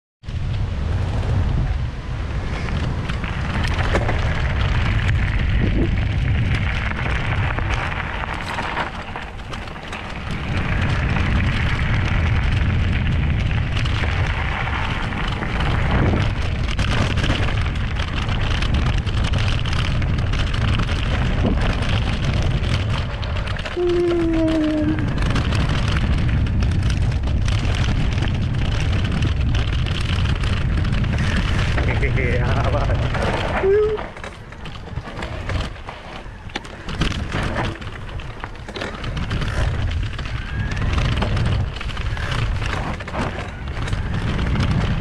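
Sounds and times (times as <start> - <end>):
wind rushing over microphone: 0.2 - 45.0
tyres rolling on rough path: 0.3 - 45.0
knocks and rattles from bumps: 25.0 - 45.0.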